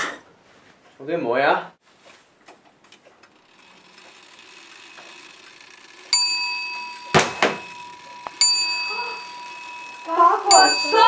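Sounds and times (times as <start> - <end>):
small bell ding: 6.1 - 11.0.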